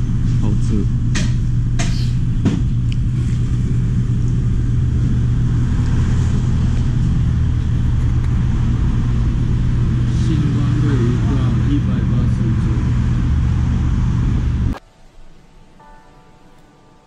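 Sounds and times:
low rumble of street traffic: 0.0s - 14.8s.

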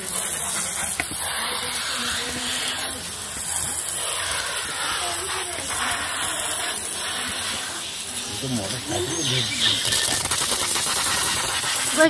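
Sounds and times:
water jet hissing: 0.0s - 12.0s.

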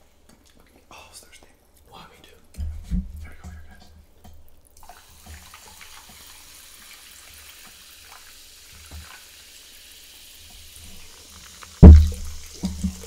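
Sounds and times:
sparkling water fizzing: 4.7s - 13.0s
water pouring over ice: 4.8s - 13.0s.

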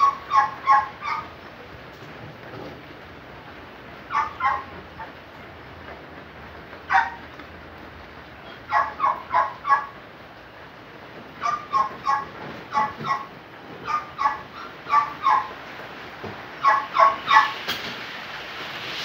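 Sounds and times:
dog barking: 0.0s - 1.3s, 4.1s - 4.7s, 6.9s - 7.2s, 8.7s - 10.0s, 11.4s - 15.5s, 16.6s - 17.6s.

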